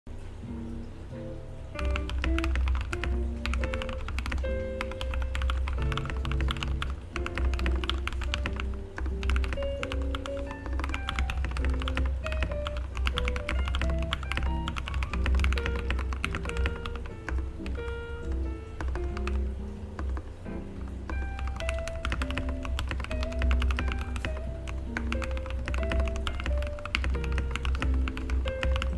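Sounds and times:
fast typing on mechanical keyboard: 1.8s - 28.9s.

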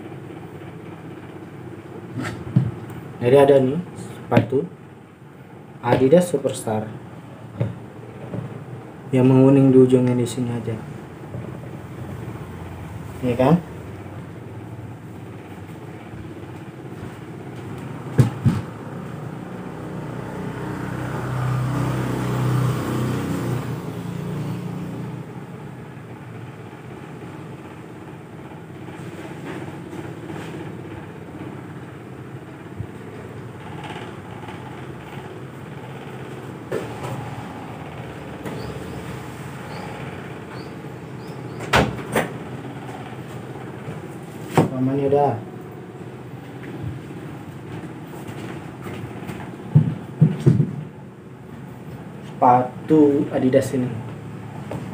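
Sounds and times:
background hum and hiss: 0.0s - 54.9s
sharp knocks: 18.1s - 18.8s, 49.7s - 50.9s
vehicle passing by: 18.7s - 25.6s, 35.8s - 41.1s.

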